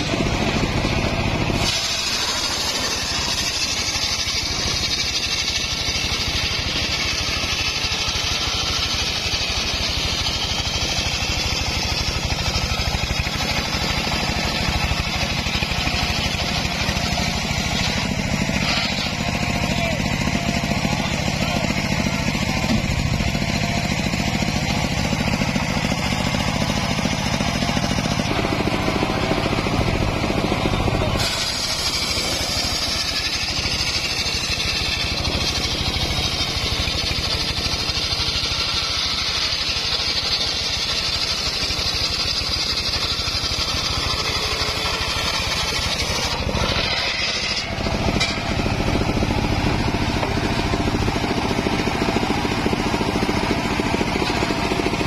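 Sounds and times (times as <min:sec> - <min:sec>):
engine drone: 0:00.0 - 0:55.0
saw blade ripping logs: 0:00.0 - 0:55.0.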